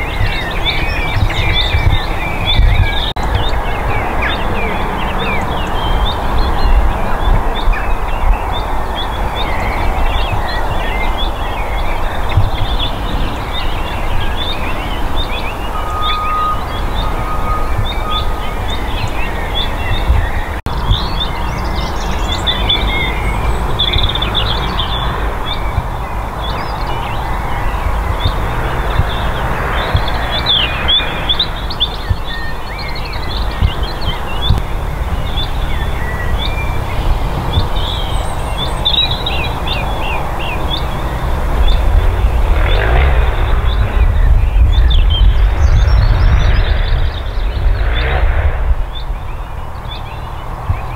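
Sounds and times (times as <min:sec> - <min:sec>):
low rumble: 0:00.0 - 0:50.9
small birds chirping: 0:00.0 - 0:50.9.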